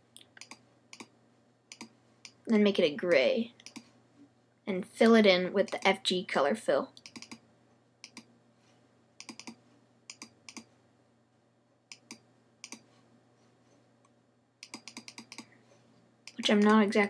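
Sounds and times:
computer mouse clicking: 0.2 - 1.1, 1.7 - 2.4, 3.6 - 3.9, 7.0 - 7.4, 8.0 - 8.3, 9.2 - 10.7, 11.9 - 12.9, 14.6 - 15.5.

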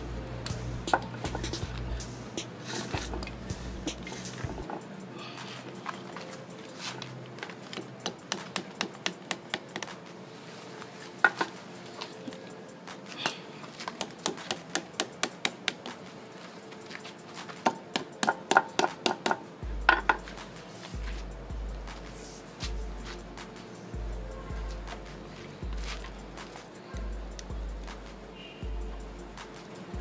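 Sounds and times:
hammer tapping on metal: 17.6 - 20.2.

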